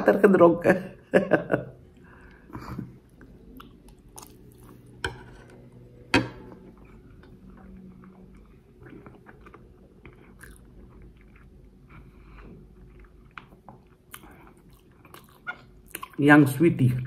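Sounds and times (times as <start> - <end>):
person chewing food: 1.8 - 16.2.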